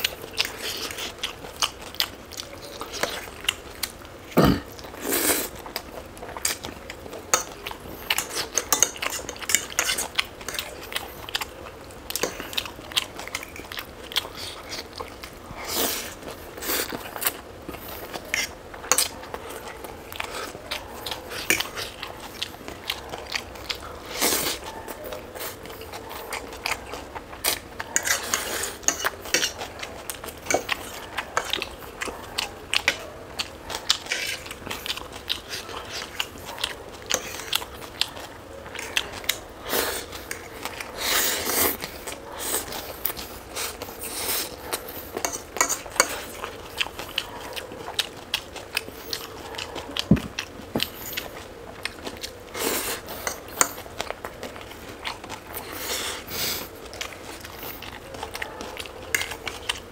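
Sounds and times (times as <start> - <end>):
person chewing crunchy food: 0.0 - 59.9.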